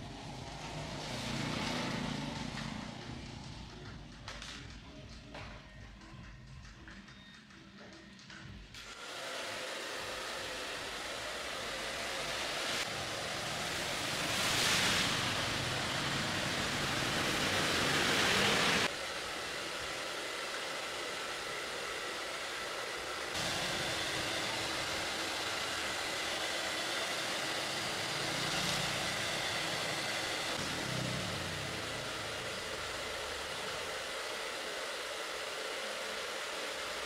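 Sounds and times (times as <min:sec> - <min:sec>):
hair dryer blowing air: 0:00.0 - 0:03.9, 0:08.8 - 0:37.0
motor whine: 0:08.8 - 0:37.0.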